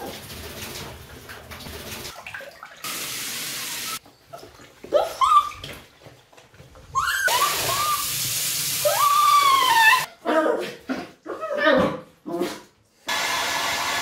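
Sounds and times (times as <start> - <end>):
dog whining: 6.9 - 8.1, 8.8 - 12.1.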